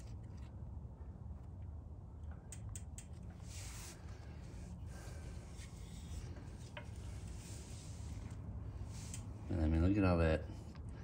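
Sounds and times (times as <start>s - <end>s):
steady low hum: 0.0s - 11.0s
light clicks of tools: 1.4s - 3.4s.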